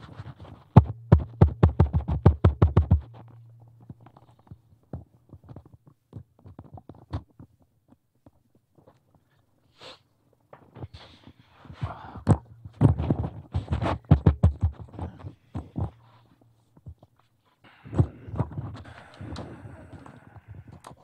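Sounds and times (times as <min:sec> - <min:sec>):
faint steady hum: 0:00.0 - 0:05.9, 0:11.4 - 0:21.0
chairs knocking and thumping: 0:12.7 - 0:16.0.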